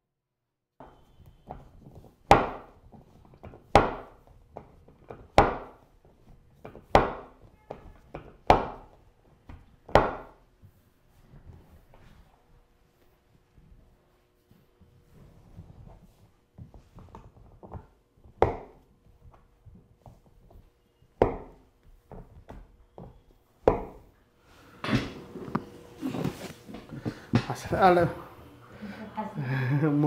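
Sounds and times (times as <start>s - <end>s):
faint steady hum: 8.8s - 30.0s.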